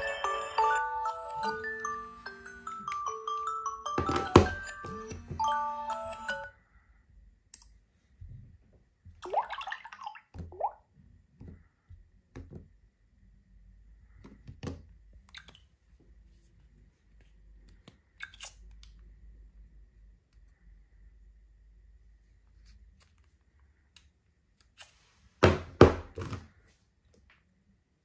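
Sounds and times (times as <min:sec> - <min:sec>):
phone alarm chime melody: 0:00.0 - 0:06.6
phones clicking and tapping: 0:01.2 - 0:06.4.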